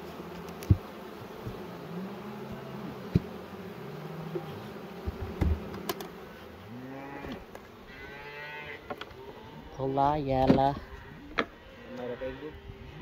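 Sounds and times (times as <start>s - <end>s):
bees buzzing: 0.0s - 13.0s
wooden hive frames knocking: 0.4s - 1.8s, 2.9s - 3.5s, 4.2s - 6.2s, 10.3s - 11.5s
cow mooing: 6.7s - 9.9s, 10.7s - 13.0s.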